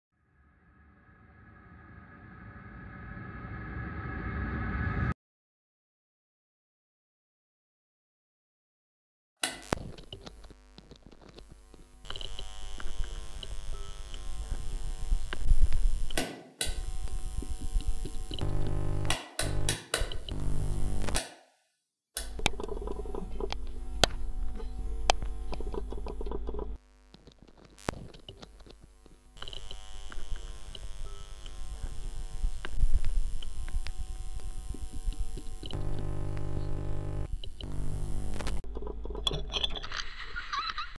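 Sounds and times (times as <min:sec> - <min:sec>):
sustained chords over low bass: 0:18.4 - 0:19.7, 0:20.3 - 0:21.2, 0:35.8 - 0:38.6.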